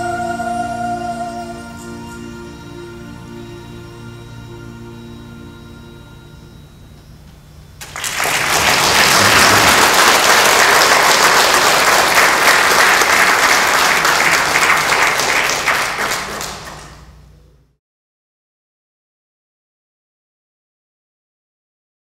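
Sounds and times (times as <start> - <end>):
audience applauding: 7.8 - 17.2.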